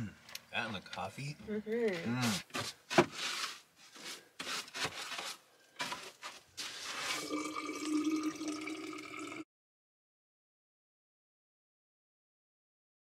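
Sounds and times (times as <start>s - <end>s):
water pouring into a bottle: 6.8s - 9.4s.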